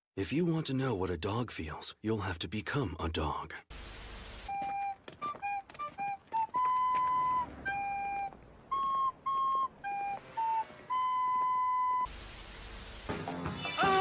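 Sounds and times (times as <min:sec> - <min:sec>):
tv static hiss: 0:03.7 - 0:04.6, 0:12.1 - 0:13.5.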